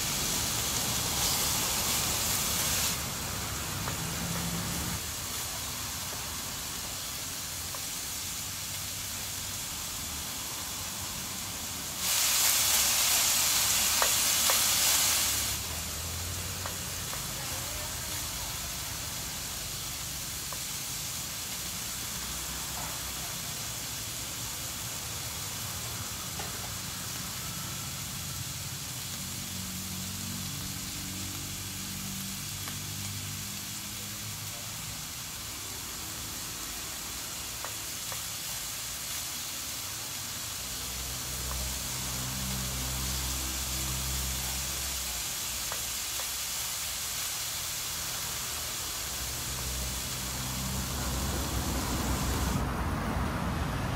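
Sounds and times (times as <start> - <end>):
meat sizzling on a grill: 0.0 - 52.7.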